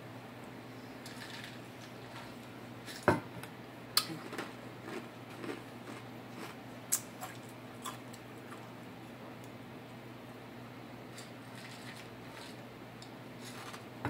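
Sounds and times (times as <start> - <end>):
chewing with lip smacks: 4.0 - 8.8.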